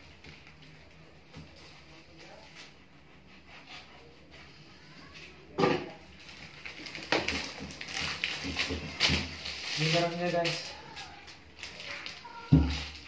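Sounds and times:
plastic wrap rustling and scraping: 0:00.0 - 0:13.0.

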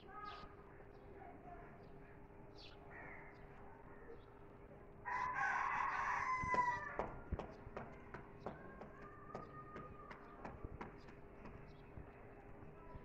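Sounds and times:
rooster crowing: 0:05.0 - 0:07.2.

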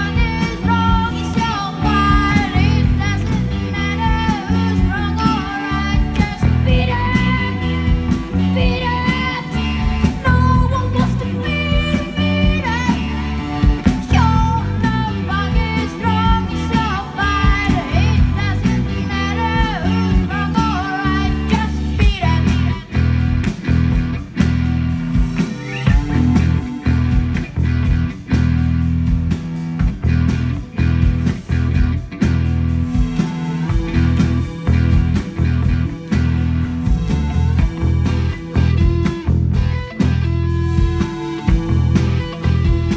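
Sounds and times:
person singing: 0:00.0 - 0:23.0
rock band playing: 0:00.0 - 0:42.9.

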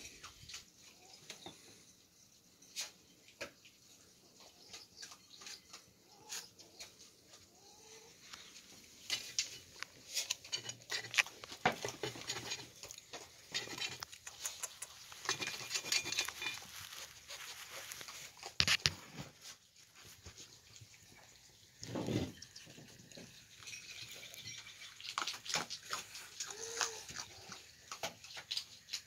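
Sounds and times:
skunks scratching and rustling: 0:08.1 - 0:21.1, 0:24.7 - 0:29.0.

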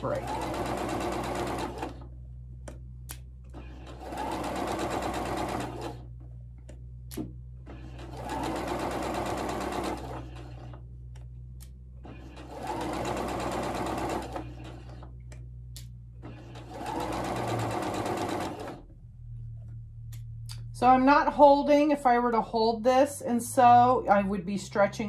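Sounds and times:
sewing machine stitching: 0:00.0 - 0:02.1, 0:03.5 - 0:06.1, 0:07.6 - 0:10.8, 0:12.0 - 0:15.2, 0:16.2 - 0:18.8.

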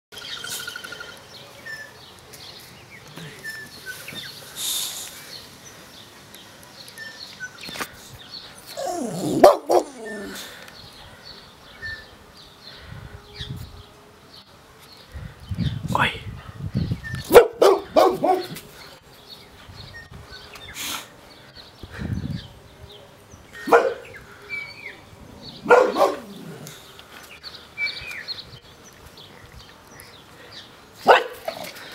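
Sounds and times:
dog barking: 0:08.8 - 0:10.4, 0:17.3 - 0:18.5, 0:23.7 - 0:24.1, 0:25.6 - 0:26.4, 0:31.0 - 0:31.5.

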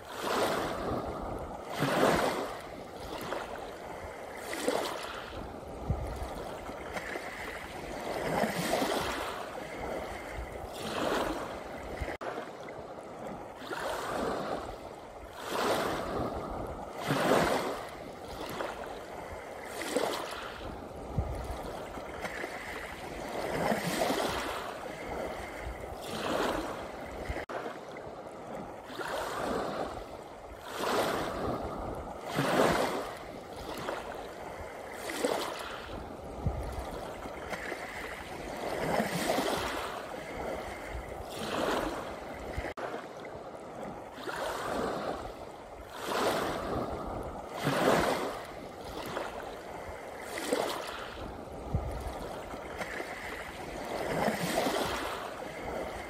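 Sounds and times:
waves washing up pebble beach: 0:00.0 - 0:27.8, 0:28.4 - 0:56.0.

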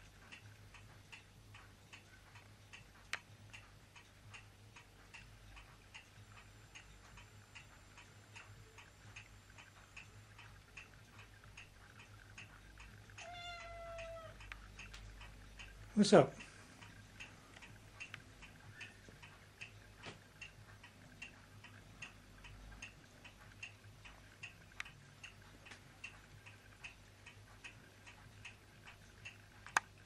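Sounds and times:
faint steady ticking: 0:00.0 - 0:30.0
kitten meowing: 0:13.2 - 0:14.4.

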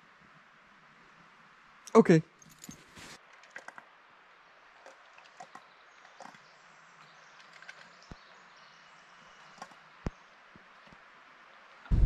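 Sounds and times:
faint steady hiss: 0:00.0 - 0:07.4.

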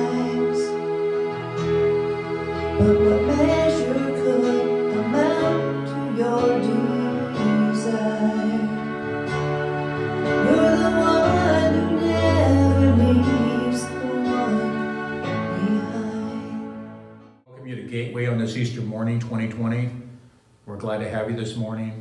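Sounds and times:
gentle piano worship music: 0:00.0 - 0:17.4.

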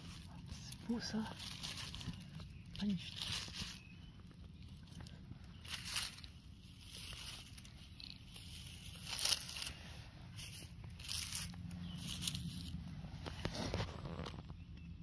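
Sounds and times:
dry grass and leaves rustling: 0:00.0 - 0:15.0.

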